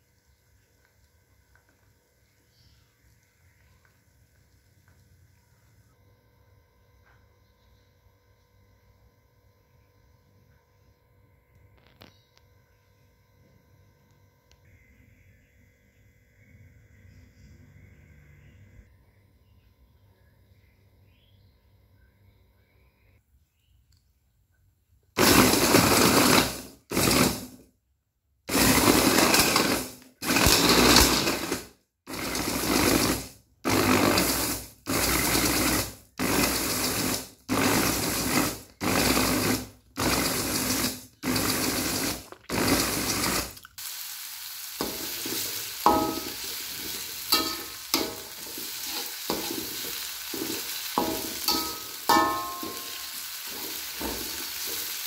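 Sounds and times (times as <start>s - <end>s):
food chopper motor whirring: 25.2s - 27.5s, 28.5s - 51.9s
metal spatula scraping pan: 25.2s - 27.6s, 28.5s - 43.5s, 44.8s - 55.0s
paste sizzling in wok: 25.2s - 27.6s, 28.5s - 55.0s.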